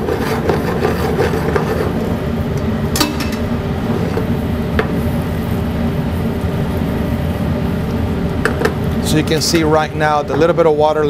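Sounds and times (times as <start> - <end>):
kitchen rumble: 2.9 - 5.2.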